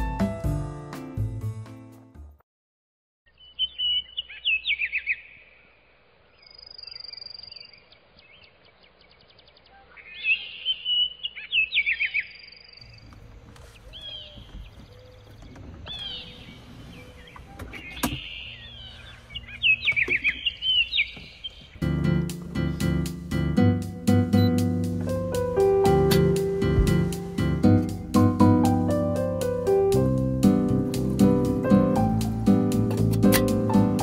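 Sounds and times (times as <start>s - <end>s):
songbirds singing: 3.3s - 23.3s
low rumble: 25.0s - 29.1s
sharp click: 32.9s - 33.6s.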